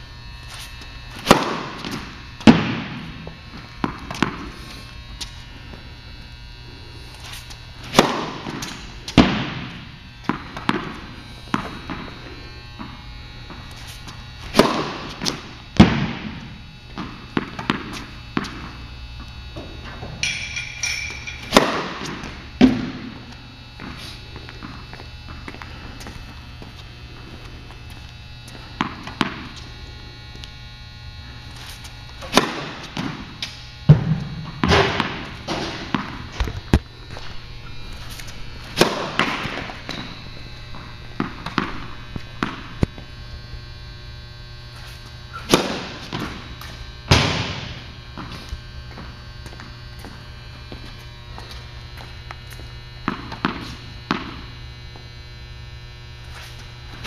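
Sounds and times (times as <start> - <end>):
low building hum: 0.0 - 57.0
racket striking tennis ball: 1.2 - 4.5, 7.3 - 12.2, 13.8 - 18.8, 19.6 - 23.2, 28.8 - 29.6, 31.7 - 36.8, 38.1 - 40.1, 40.7 - 42.9, 45.3 - 48.4
tennis balls bouncing: 1.2 - 4.5, 7.8 - 13.6, 14.5 - 18.8, 19.6 - 25.6, 28.5 - 29.6, 32.2 - 36.9, 38.0 - 43.0, 45.4 - 50.2, 53.0 - 54.5.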